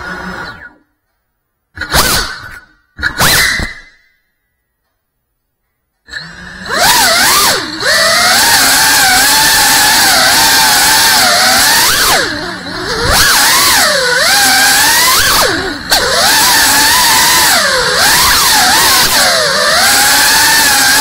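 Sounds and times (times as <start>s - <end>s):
quadcopter motors whining: 0.0s - 0.8s, 6.1s - 21.0s.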